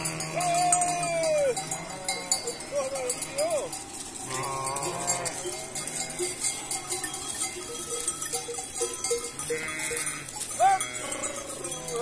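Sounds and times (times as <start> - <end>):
sheep bleat: 0.0 - 6.9, 9.4 - 12.0
animal bells clinking: 0.0 - 12.0.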